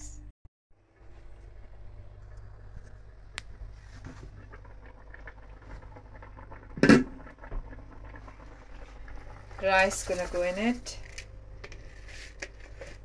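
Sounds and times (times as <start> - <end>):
food simmering in a pan: 1.1 - 11.5
faint crackling and ticking: 2.2 - 11.9.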